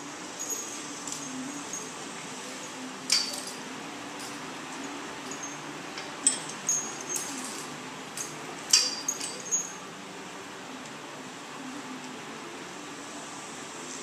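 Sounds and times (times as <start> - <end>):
metal horse tack jingling: 4.2 - 9.8.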